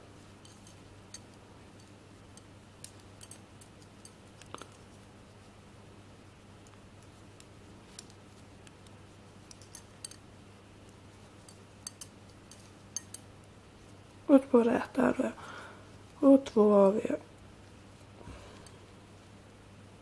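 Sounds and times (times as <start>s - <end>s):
faint steady hum: 0.0s - 20.0s
metal knitting needles clicking: 0.4s - 4.8s, 6.6s - 10.2s, 10.8s - 13.6s.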